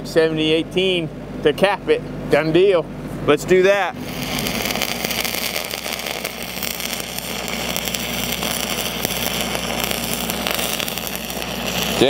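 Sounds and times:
engine running: 0:03.7 - 0:12.0
welding arc crackling and hissing: 0:03.8 - 0:12.0.

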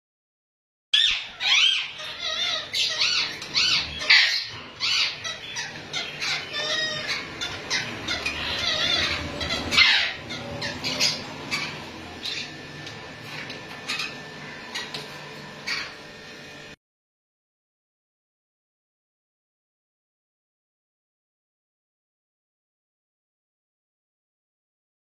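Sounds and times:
parakeets squawking: 0:01.0 - 0:16.7.

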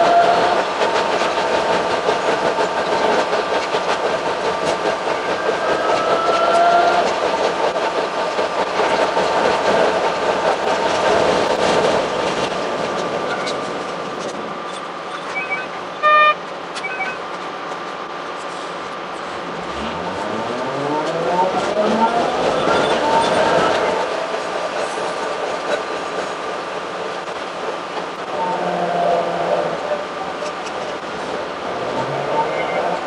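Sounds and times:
railcar wheels and motor rattle: 0:00.0 - 0:33.0
short loud tone: 0:15.3 - 0:17.2
small beeps: 0:15.3 - 0:17.2.

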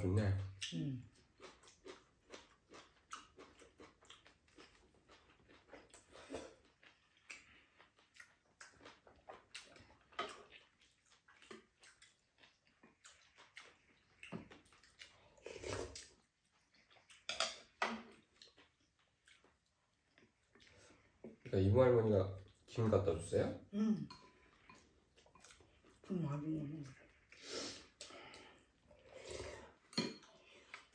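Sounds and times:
chewing and lip smacks: 0:00.4 - 0:21.5, 0:24.5 - 0:26.1.

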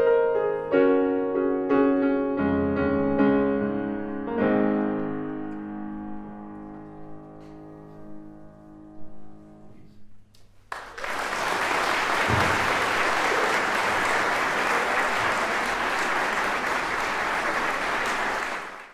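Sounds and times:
audience applause: 0:10.7 - 0:18.9.

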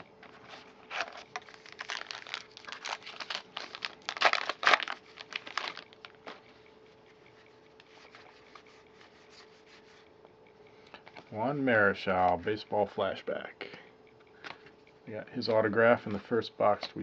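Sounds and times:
cards rustling: 0:00.2 - 0:06.5
wrapper tearing and crinkling: 0:00.9 - 0:06.3.

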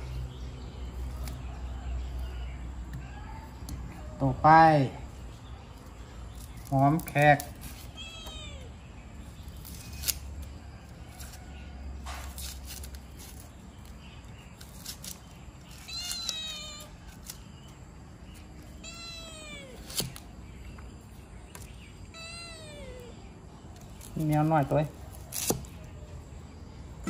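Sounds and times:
kitten meowing: 0:07.8 - 0:08.8, 0:15.8 - 0:17.1, 0:18.7 - 0:20.2, 0:22.1 - 0:23.3.

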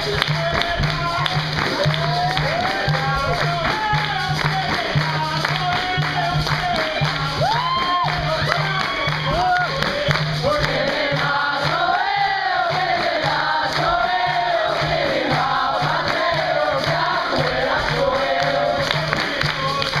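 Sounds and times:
hand clapping: 0:00.0 - 0:20.0
group singing: 0:00.6 - 0:20.0
steady low beat: 0:08.3 - 0:19.8.

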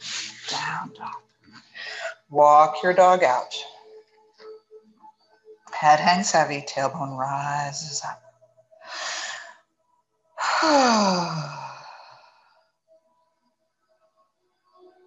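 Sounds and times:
woman breathing in: 0:08.8 - 0:09.6
woman sighing: 0:10.4 - 0:12.2.

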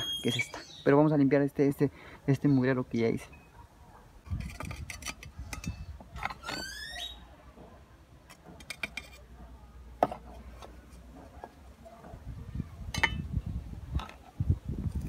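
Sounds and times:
short rising squeak: 0:06.3 - 0:07.2.

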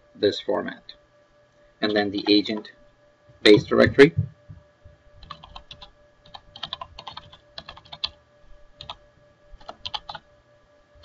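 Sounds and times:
faint steady hum: 0:00.0 - 0:11.0
computer keyboard typing: 0:05.2 - 0:08.2, 0:08.8 - 0:09.0, 0:09.6 - 0:10.2.

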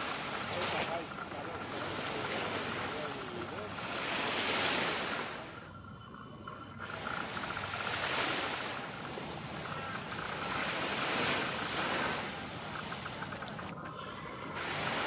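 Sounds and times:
faint steady whine: 0:00.0 - 0:15.0
waves breaking on a beach: 0:00.0 - 0:15.0.

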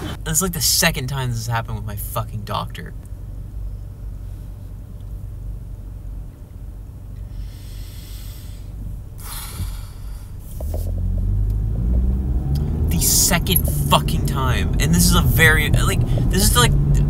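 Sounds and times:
car interior low hum: 0:00.0 - 0:17.0
woman breathing in: 0:07.2 - 0:10.4.

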